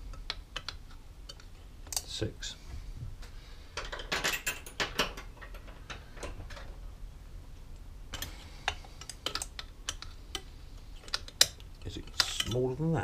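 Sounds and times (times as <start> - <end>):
metal tools clicking and clinking: 3.8 - 6.8, 8.1 - 12.8.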